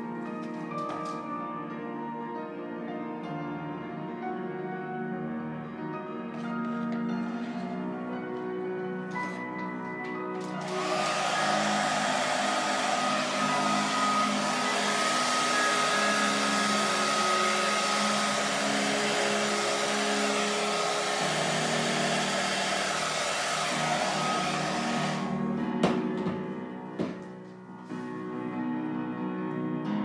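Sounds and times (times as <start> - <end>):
hair dryer running: 10.4 - 26.0.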